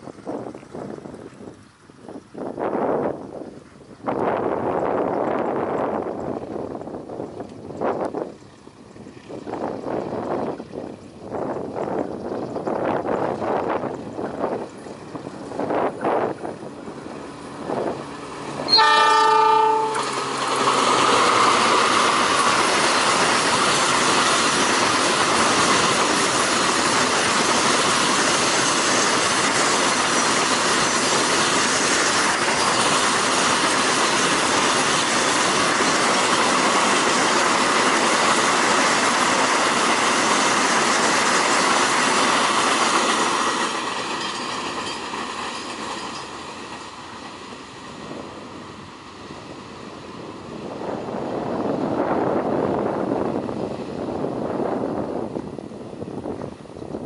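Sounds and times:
train wheels rolling on rails: 0:00.0 - 0:57.0
locomotive horn blast: 0:18.6 - 0:20.3.

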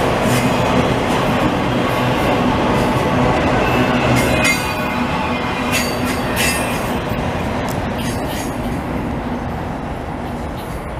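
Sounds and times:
freight train wheels rumbling: 0:00.0 - 0:10.9
train wheel squeals: 0:03.6 - 0:07.1, 0:08.0 - 0:08.8.

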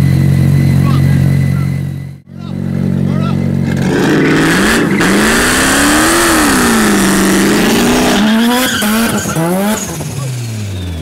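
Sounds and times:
rotary engine revving high: 0:00.0 - 0:11.0
tyres squealing: 0:06.7 - 0:10.0.

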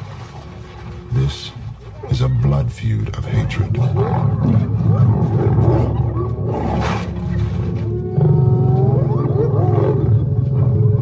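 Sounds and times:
hyenas calling: 0:03.3 - 0:11.0
lions snarling and growling: 0:03.3 - 0:11.0.

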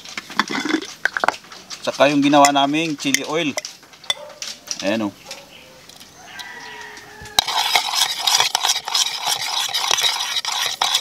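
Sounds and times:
spoon stirring in ceramic bowl: 0:07.4 - 0:11.0.

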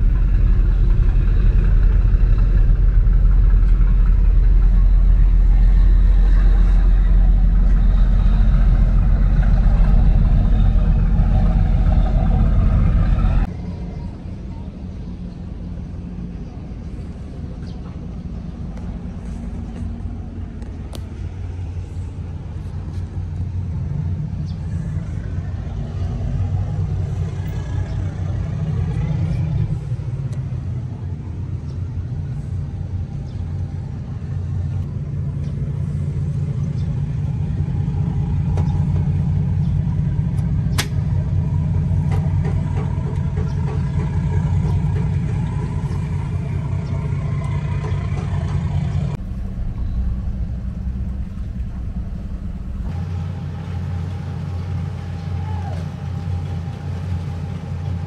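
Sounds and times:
low mechanical hum: 0:00.0 - 0:58.0
sharp click: 0:40.7 - 0:41.0.

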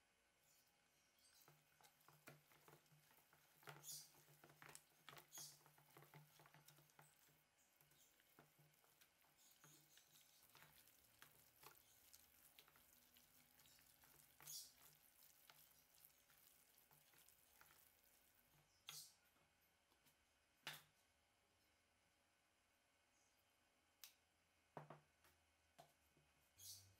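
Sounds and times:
hands kneading wet filling: 0:00.4 - 0:20.2.

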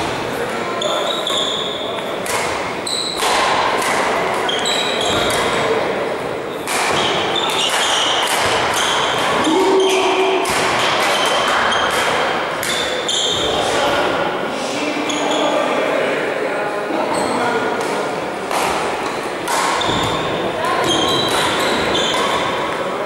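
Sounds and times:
shoes squeaking on floor: 0:00.0 - 0:03.4, 0:04.4 - 0:05.7, 0:06.5 - 0:13.7, 0:15.0 - 0:15.7, 0:17.0 - 0:17.6, 0:19.0 - 0:22.8
racket hitting shuttlecock: 0:02.0 - 0:05.7, 0:06.6 - 0:13.5, 0:17.8 - 0:22.8.

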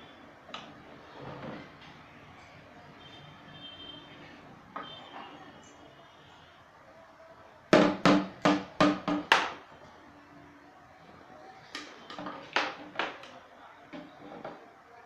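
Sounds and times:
knocks on hollow plastic container: 0:07.8 - 0:09.6.

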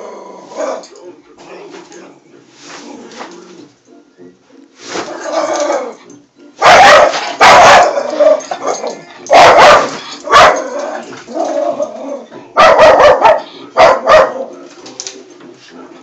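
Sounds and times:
dog barking: 0:06.6 - 0:11.0, 0:12.6 - 0:14.6.

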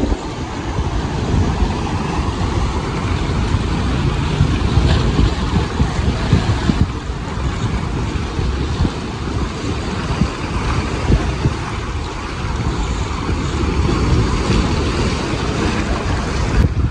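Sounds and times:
sea surf washing over rocks: 0:00.0 - 0:16.9
wind buffeting microphone: 0:00.0 - 0:16.9.

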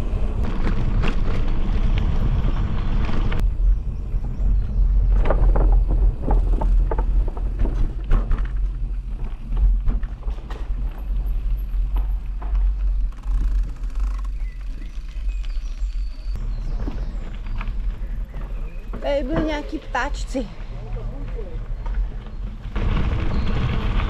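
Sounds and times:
wind rumbling on microphone: 0:00.0 - 0:24.0
bicycle clicks and rattles: 0:05.2 - 0:19.4.

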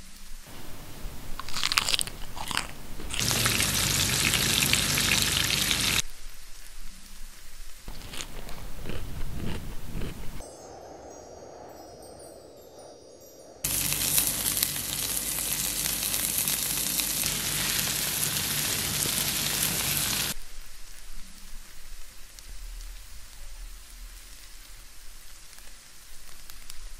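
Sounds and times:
fish sizzling in hot oil: 0:03.1 - 0:06.0, 0:13.7 - 0:20.4.

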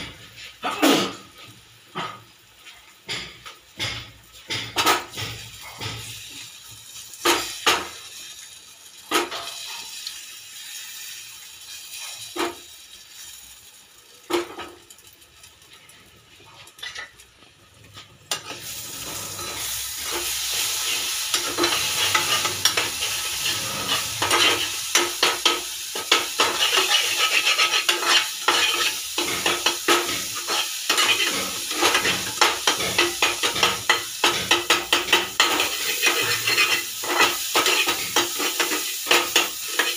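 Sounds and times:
egg sizzling: 0:00.0 - 0:39.9
steel spoon knocking on a pan: 0:03.0 - 0:06.1, 0:30.9 - 0:39.9
spoon scraping and stirring: 0:17.9 - 0:39.9.

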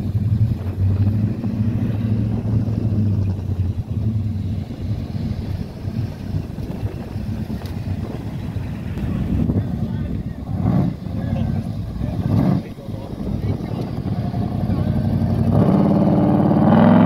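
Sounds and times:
car engines driving past: 0:00.0 - 0:17.0.

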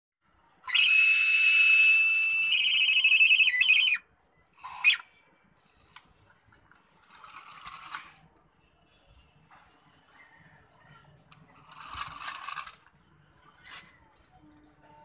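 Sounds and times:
high electronic whistling tone: 0:00.7 - 0:05.2.

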